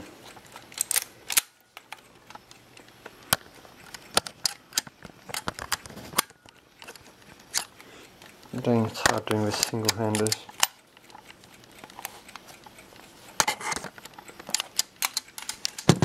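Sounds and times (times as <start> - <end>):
camera mechanism clicking: 0.2 - 15.9
handling noise: 15.4 - 16.0.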